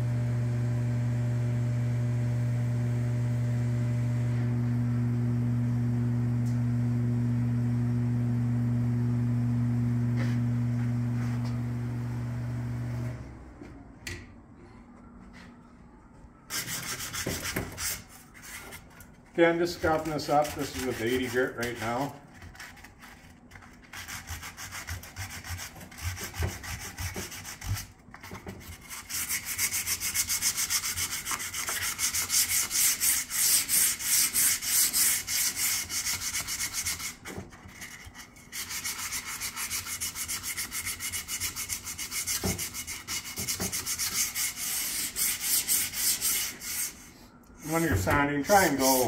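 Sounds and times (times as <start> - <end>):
sandpaper rubbing on wood: 16.5 - 27.9, 28.6 - 49.0.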